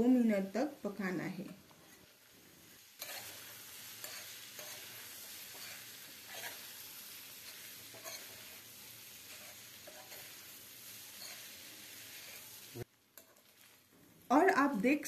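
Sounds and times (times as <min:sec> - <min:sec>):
food sizzling in a pan: 0:00.0 - 0:15.0
spatula scraping pan: 0:02.8 - 0:13.7.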